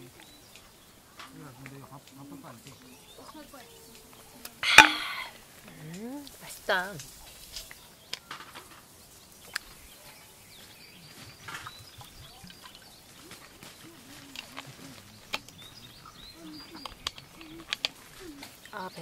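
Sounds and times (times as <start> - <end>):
faint birds chirping: 0.0 - 19.0
bottle and tableware clicks: 4.6 - 5.2.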